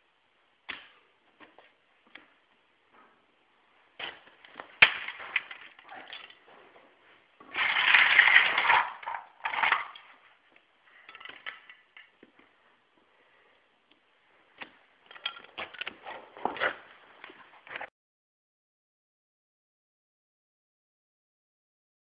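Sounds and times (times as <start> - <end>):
plastic toy cars clattering: 4.0 - 6.5, 7.4 - 10.3, 10.9 - 12.5, 14.6 - 16.9.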